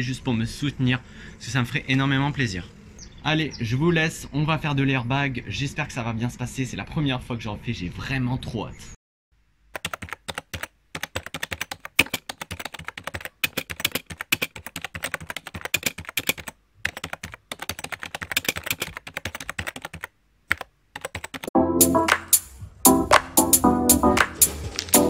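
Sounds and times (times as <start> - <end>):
keyboard typing clicks: 9.7 - 21.5
music: 21.6 - 25.0.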